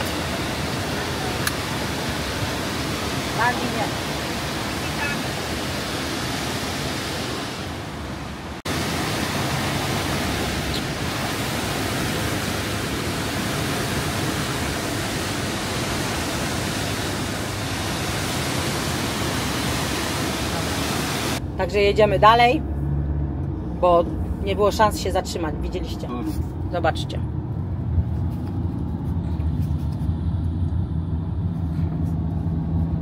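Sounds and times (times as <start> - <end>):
waterfall rushing: 0.0 - 21.4.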